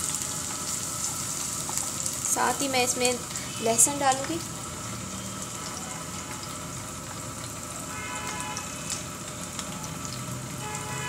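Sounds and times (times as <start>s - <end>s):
small crackles and pops: 0.0s - 4.5s, 5.3s - 10.3s
food sizzling in hot oil: 0.0s - 11.0s.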